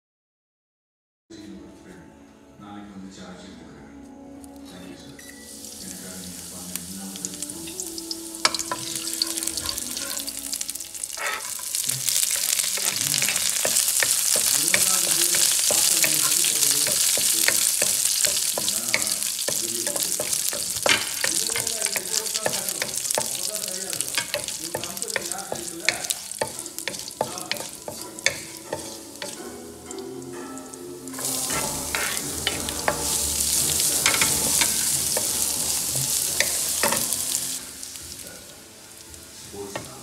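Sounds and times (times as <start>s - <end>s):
leaves sizzling in hot oil: 5.3s - 40.0s
wooden spoon scraping pan: 11.1s - 29.6s, 31.2s - 37.4s.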